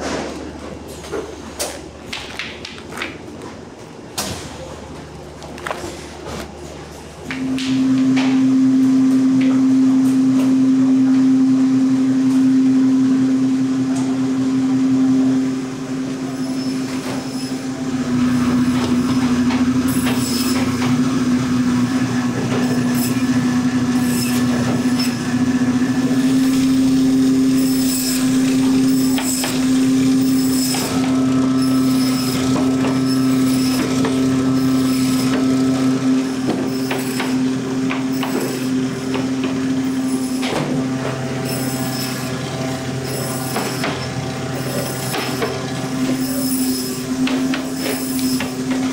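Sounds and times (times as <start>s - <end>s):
band saw humming: 14.0s - 48.9s.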